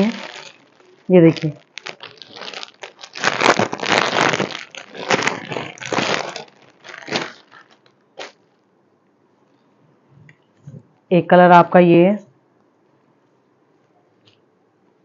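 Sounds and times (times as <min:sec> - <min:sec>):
fabric rustling: 0:00.0 - 0:08.5
plastic bag crinkling: 0:00.0 - 0:08.5.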